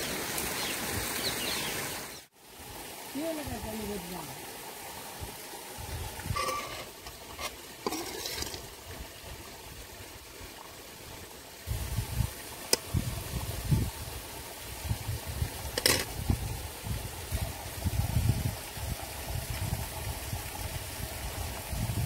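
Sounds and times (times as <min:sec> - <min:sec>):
spoon scraping and clinking on pan: 0:06.3 - 0:08.6, 0:15.8 - 0:16.1.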